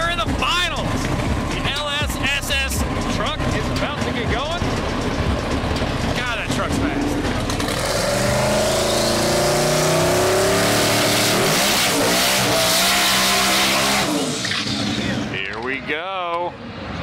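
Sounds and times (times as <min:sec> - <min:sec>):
engine revving high: 0:06.7 - 0:15.2.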